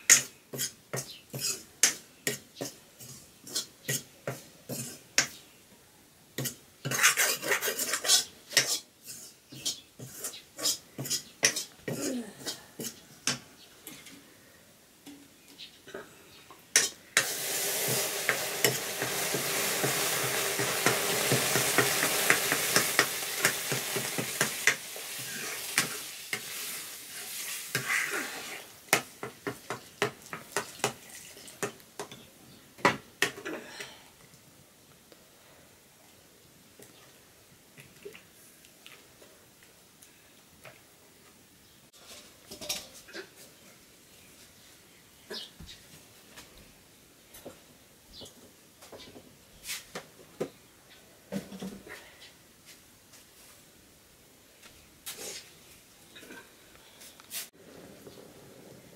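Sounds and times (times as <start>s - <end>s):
spoon scraping wok: 0.1s - 5.3s, 6.4s - 11.8s, 16.8s - 31.0s
liquid sizzling in hot wok: 16.8s - 31.8s.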